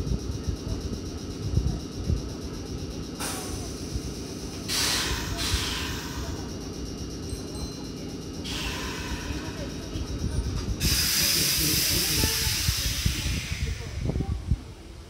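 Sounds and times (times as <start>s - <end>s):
low rumble of idling train: 0.0s - 15.0s
train releasing air hisses: 3.2s - 6.6s, 8.4s - 14.5s.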